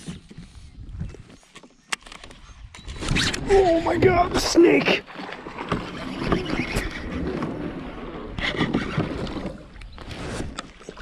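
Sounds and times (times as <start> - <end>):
wind on microphone: 0.0 - 1.4.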